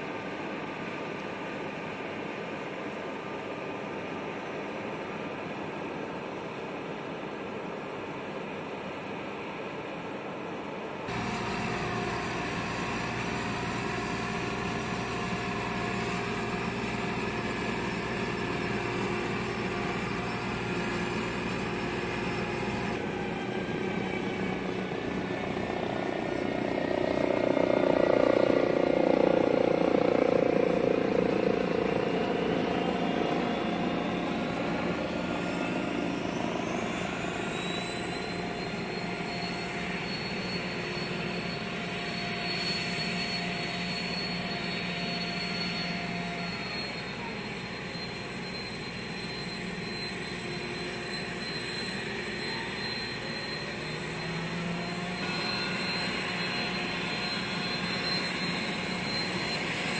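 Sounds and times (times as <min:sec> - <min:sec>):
turbine engine noise: 0:00.0 - 0:59.9
rising whine: 0:11.1 - 0:59.9.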